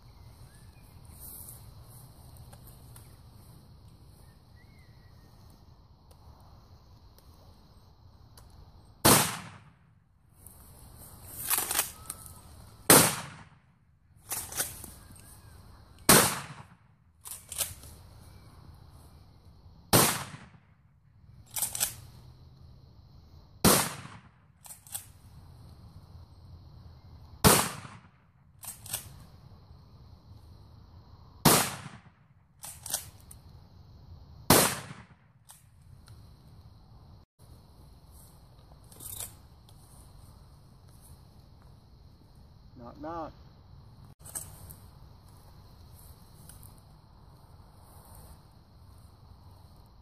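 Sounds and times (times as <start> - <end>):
shotgun shots: 9.0 - 9.8, 12.9 - 13.6, 16.1 - 16.8, 19.9 - 20.7, 23.6 - 24.4, 27.4 - 28.2, 31.4 - 32.2, 34.5 - 35.2.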